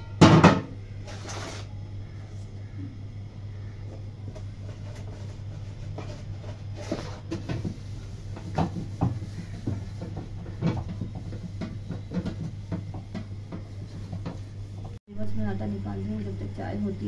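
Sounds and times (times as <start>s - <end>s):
metal bowls clanking and scraping: 3.8s - 15.0s.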